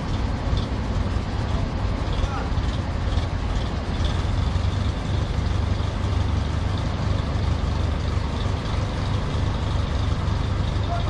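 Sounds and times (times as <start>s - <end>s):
heavy engine humming: 0.0s - 11.0s.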